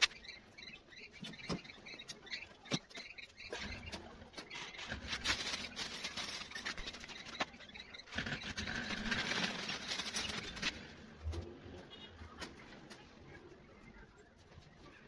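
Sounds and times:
scratchy rustling: 0:04.5 - 0:10.8.

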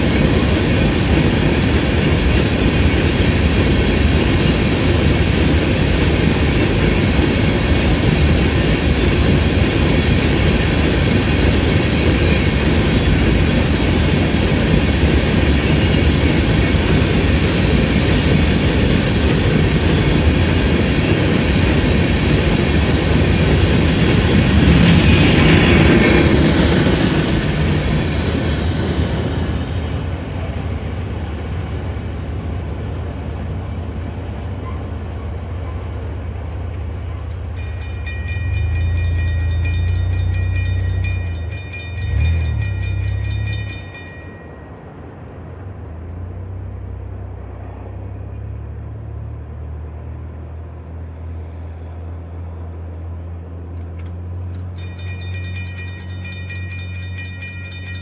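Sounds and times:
crossing bell ringing: 0:00.0 - 0:29.7, 0:37.0 - 0:45.5, 0:54.4 - 0:58.0
freight train wheels clattering: 0:00.0 - 0:45.7, 0:53.7 - 0:58.0.

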